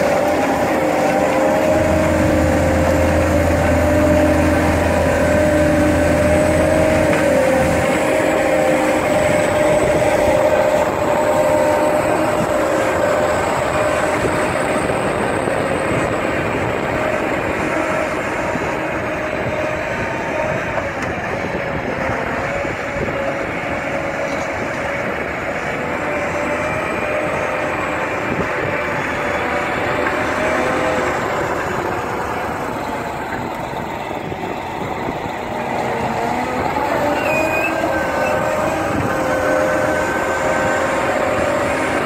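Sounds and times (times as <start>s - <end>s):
faint wavering whine: 0.0s - 18.8s
harvester machinery din: 0.0s - 42.0s.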